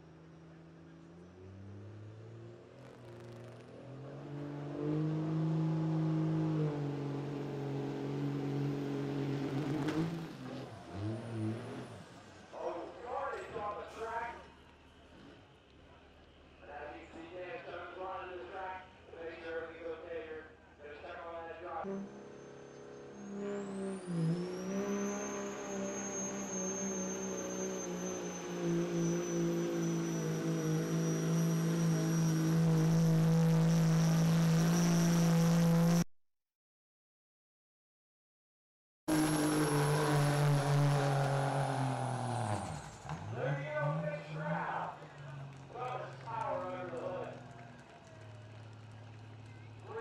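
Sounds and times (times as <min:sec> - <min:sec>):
truck engine revving: 0:01.2 - 0:12.5, 0:21.8 - 0:36.1, 0:39.1 - 0:50.0.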